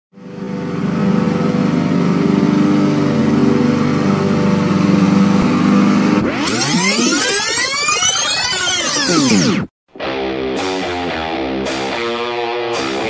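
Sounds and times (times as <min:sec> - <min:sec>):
lawn tractor engine mowing: 0:00.2 - 0:07.5
guitar music: 0:00.4 - 0:13.0.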